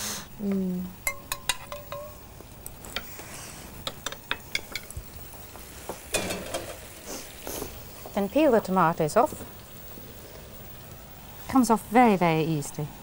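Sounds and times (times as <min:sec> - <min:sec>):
meat frying with crackles: 0:00.0 - 0:13.0
metal spoon clinking on saucepan: 0:01.0 - 0:02.3.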